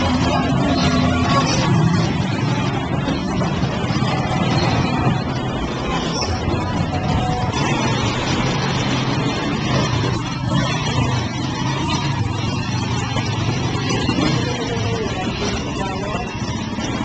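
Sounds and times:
indistinct voices: 0.0 - 17.0
street noise: 0.0 - 17.0
vehicle engine running: 0.0 - 17.0.

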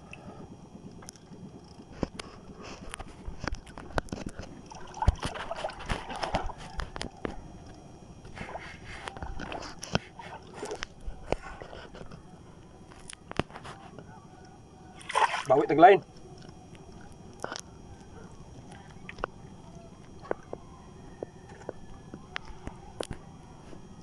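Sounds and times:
water sloshing against boat hull: 4.6 - 6.7.

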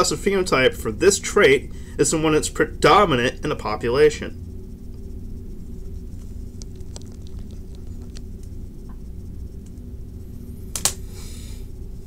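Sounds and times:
low hum: 0.0 - 12.0
faint ticks: 6.0 - 9.9.

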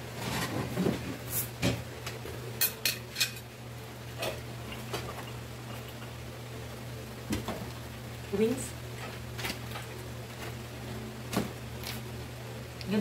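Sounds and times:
steady low hum: 0.0 - 13.0
utensils clinking on dishes: 2.6 - 3.5.

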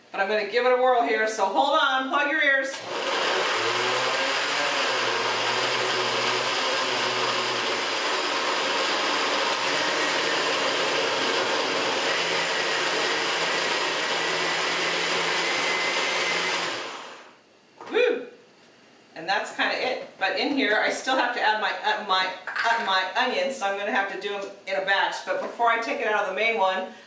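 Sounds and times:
blender whirring: 2.7 - 17.4.

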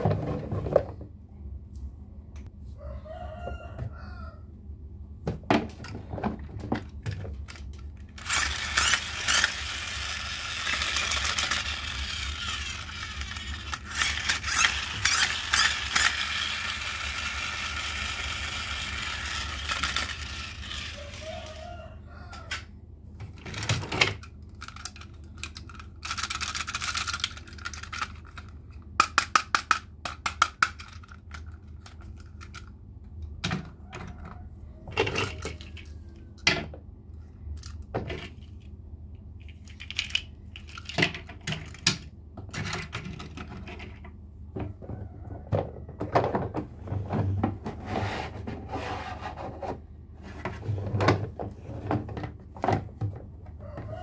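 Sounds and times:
hard toys knocking and clattering: 5.2 - 21.1, 23.2 - 36.8, 39.4 - 48.6.

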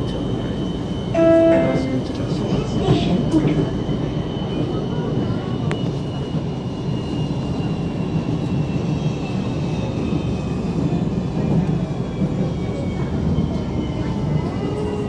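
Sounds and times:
train wheels rumbling on track: 0.0 - 15.0.

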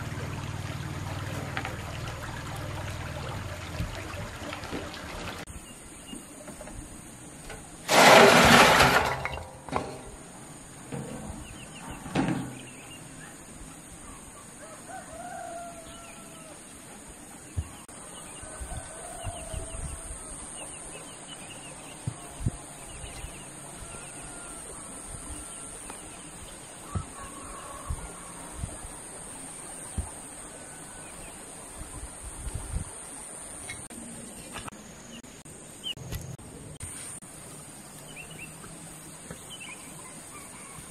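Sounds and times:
bricks clattering onto soil: 7.6 - 10.2.

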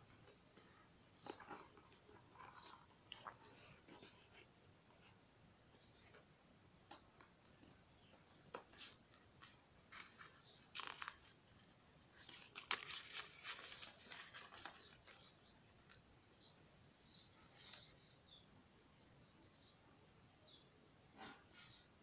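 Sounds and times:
paper and bubble wrap rustling: 8.6 - 15.9.

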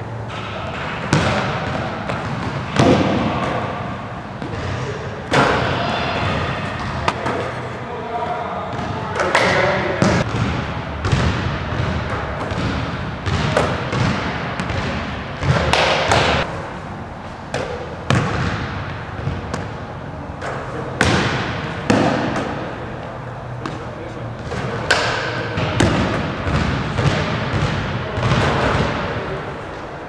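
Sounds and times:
basketball striking hoop: 0.3 - 3.5, 8.7 - 16.5, 17.5 - 19.7, 21.0 - 22.6, 24.9 - 29.1
basketball bouncing on hardwood floor: 1.1 - 3.1, 10.0 - 16.4, 25.6 - 28.9.

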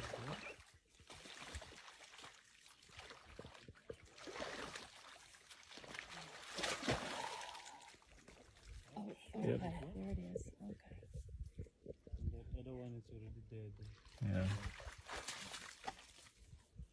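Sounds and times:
muddy water splashing: 0.0 - 9.4, 13.8 - 16.5.

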